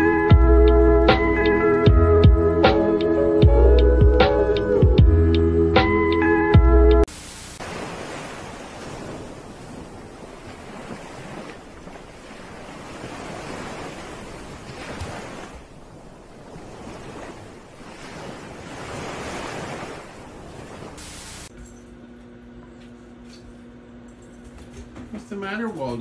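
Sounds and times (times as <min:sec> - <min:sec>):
ocean surf breaking on beach: 0:07.5 - 0:21.5.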